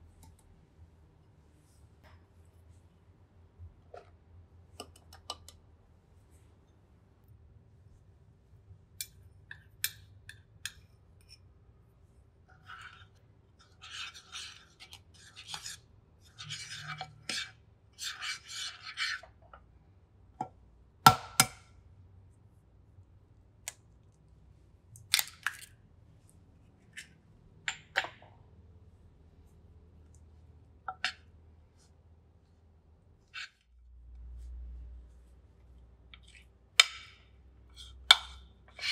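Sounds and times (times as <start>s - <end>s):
fork scraping flour in glass dish: 12.6s - 19.4s, 37.7s - 38.9s.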